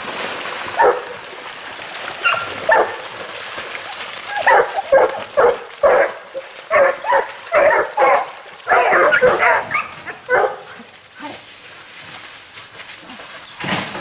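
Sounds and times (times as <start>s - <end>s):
hunting dogs baying: 3.9s - 11.4s.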